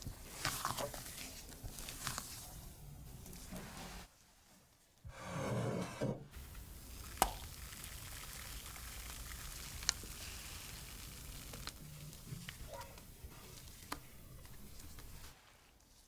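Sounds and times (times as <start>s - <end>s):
thick batter pouring: 0.0s - 3.4s, 6.4s - 15.4s.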